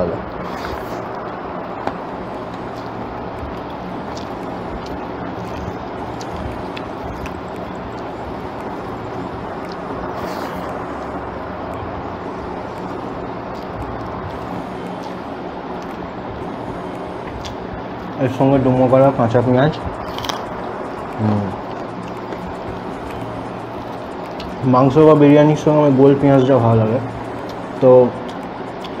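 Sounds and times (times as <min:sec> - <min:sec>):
steady background noise: 0:00.0 - 0:29.0
person eating with fingers: 0:20.0 - 0:24.6.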